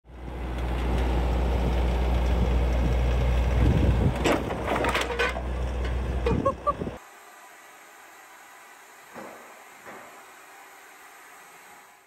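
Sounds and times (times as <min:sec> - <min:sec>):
tractor diesel engine rumbling: 0:00.1 - 0:07.0
knocks and creaks: 0:03.6 - 0:07.0.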